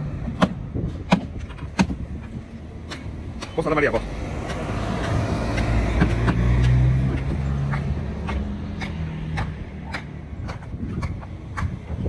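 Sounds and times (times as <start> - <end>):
sharp taps: 4.4 - 11.9.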